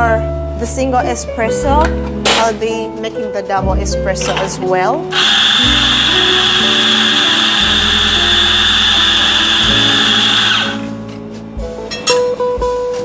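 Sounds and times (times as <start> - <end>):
electric coffee grinder running: 5.1 - 10.9.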